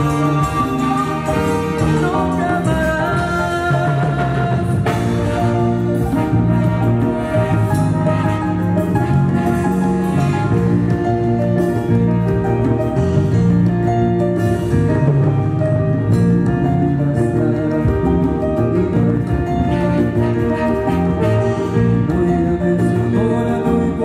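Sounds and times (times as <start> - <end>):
horn section: 0.0 - 3.5, 4.8 - 11.0, 19.6 - 22.1
drum kit: 0.0 - 24.0.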